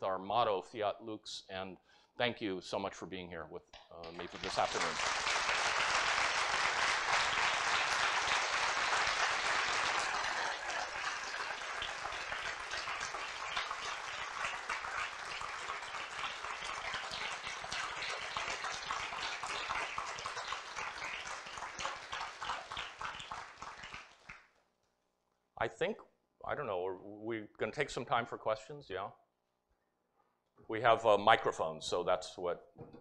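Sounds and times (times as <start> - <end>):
audience applauding: 4.0 - 24.4.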